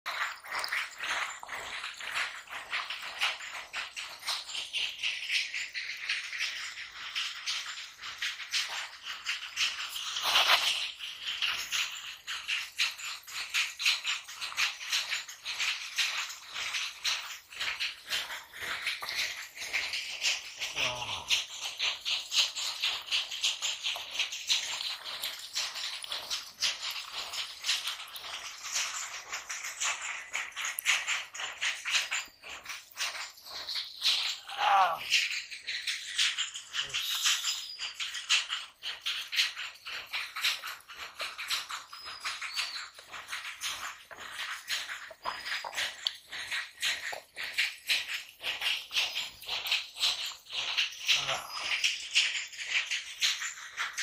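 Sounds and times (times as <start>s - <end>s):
fish splashing in water: 0.1s - 54.0s
hands squelching through mud: 36.1s - 51.8s.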